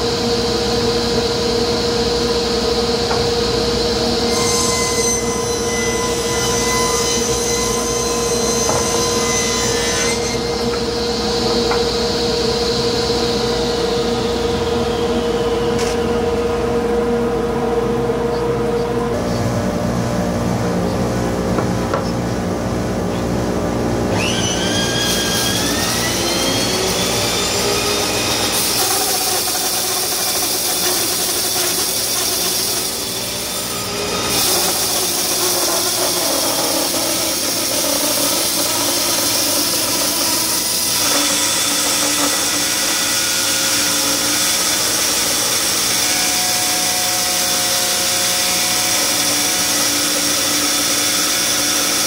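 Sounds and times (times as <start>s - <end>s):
rising machine whine: 0.0s - 21.0s
bandsaw cutting wood: 24.2s - 52.0s.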